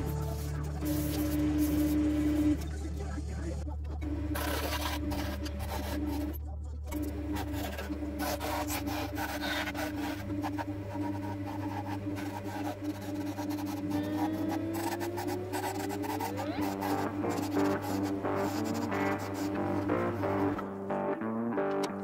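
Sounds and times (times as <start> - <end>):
lathe motor humming: 4.0 - 6.3, 7.0 - 20.7
tool scraping wood: 4.3 - 6.4, 7.0 - 20.6.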